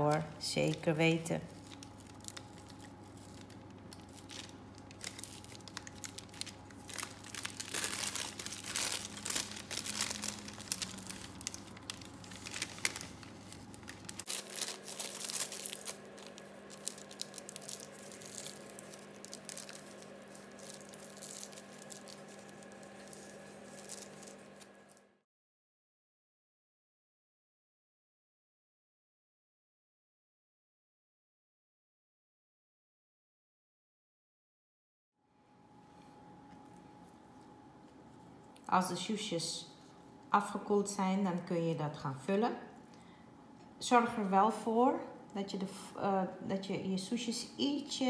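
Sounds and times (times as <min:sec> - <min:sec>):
plastic piping bag crinkling: 0:00.0 - 0:25.0.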